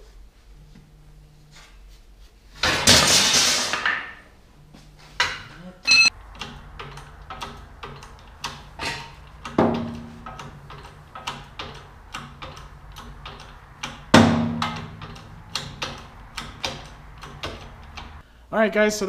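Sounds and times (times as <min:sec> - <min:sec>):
pump handle clicking: 0:06.4 - 0:18.2
loud metallic bang: 0:14.1 - 0:16.7.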